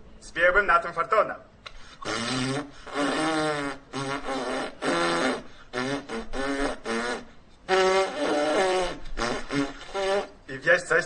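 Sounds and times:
man tooting mouth-made notes: 0:01.7 - 0:10.5.

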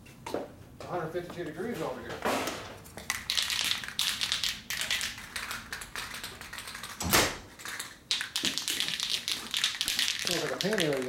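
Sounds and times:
spray can ball rattling: 0:03.0 - 0:11.0.

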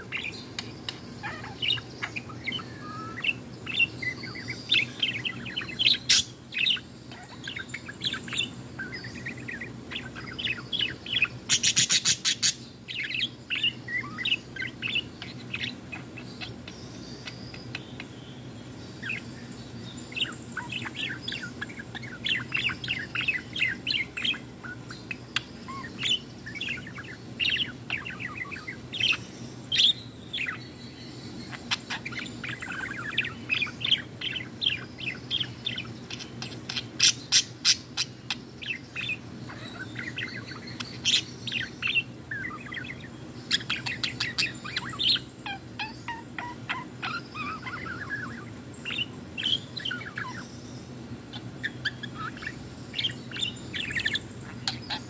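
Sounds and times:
budgerigar warbling: 0:00.0 - 0:18.0, 0:31.5 - 0:50.4
faint low hum: 0:00.0 - 0:55.0.

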